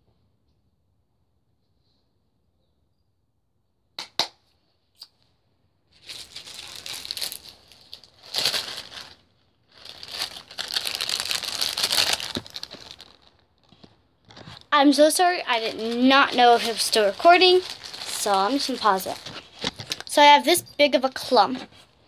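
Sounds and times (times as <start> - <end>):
plastic bag crinkling: 6.0 - 22.0.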